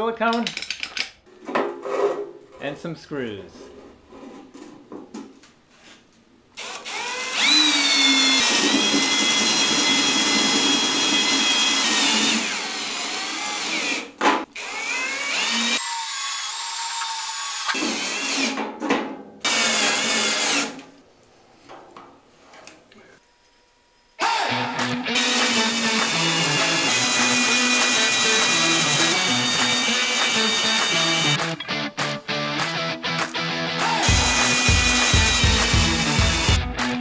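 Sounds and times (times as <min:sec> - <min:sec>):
drill driving screws into metal: 0:25.2 - 0:31.4.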